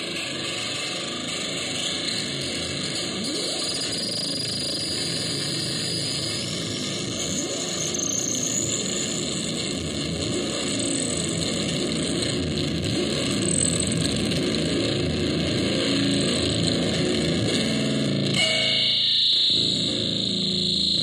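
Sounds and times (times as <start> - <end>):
distorted electronic noise: 0.0 - 21.0
pitched buzz with high hiss: 18.4 - 21.0.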